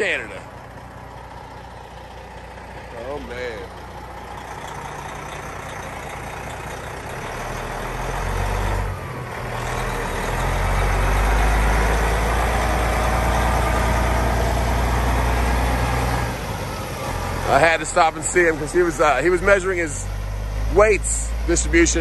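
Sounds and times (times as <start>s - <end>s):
truck diesel engine under load: 0.0s - 22.0s.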